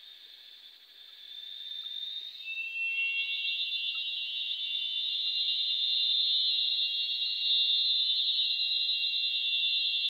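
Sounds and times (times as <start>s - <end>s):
cicadas droning: 0.0s - 10.0s.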